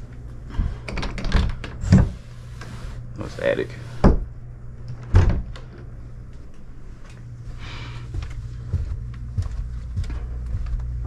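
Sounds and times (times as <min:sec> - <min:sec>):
wooden door thudding shut: 0:05.1 - 0:05.5
footsteps down a staircase: 0:07.0 - 0:11.0.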